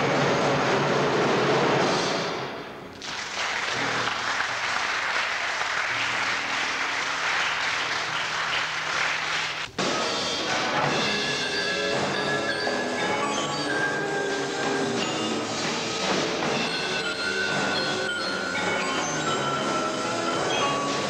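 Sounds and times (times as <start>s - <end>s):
percussion ensemble playing: 5.7s - 21.0s
mallet percussion pitched notes: 10.8s - 21.0s.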